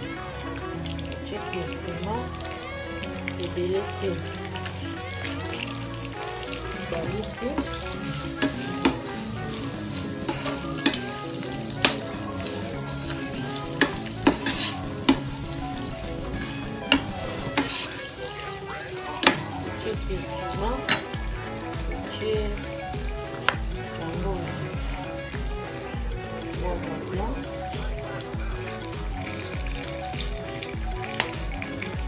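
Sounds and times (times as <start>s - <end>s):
fish sizzling in hot oil: 0.0s - 32.0s
metal spatula scraping a pan: 6.8s - 18.2s.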